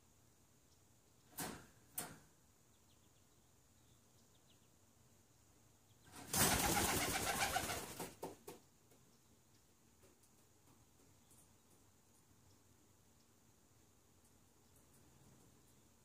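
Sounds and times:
pigeon wings flapping: 0:06.2 - 0:08.6.

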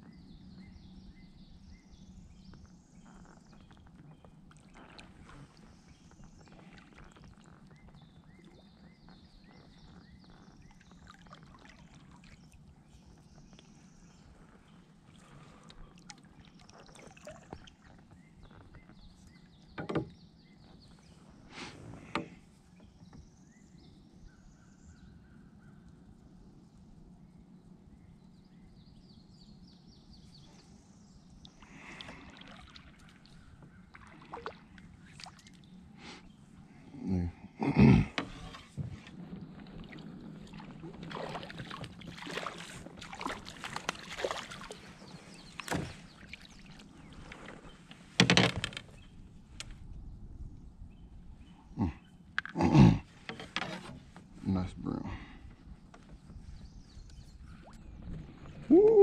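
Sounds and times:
fish splashing and thrashing: 0:39.8 - 0:46.1.

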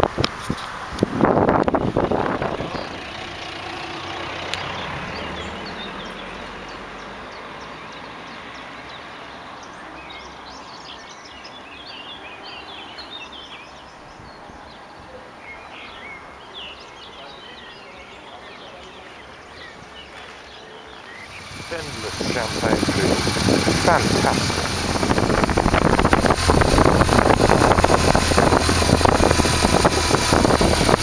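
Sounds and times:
small birds chirping: 0:01.7 - 0:31.0
loud rush of noise: 0:21.2 - 0:31.0.

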